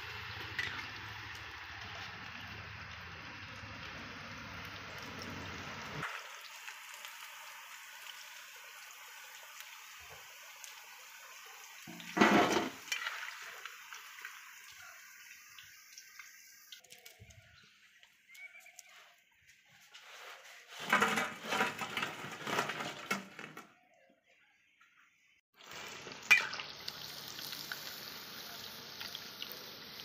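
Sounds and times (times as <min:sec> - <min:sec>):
food sizzling in hot oil: 0:00.0 - 0:17.1, 0:25.6 - 0:30.0.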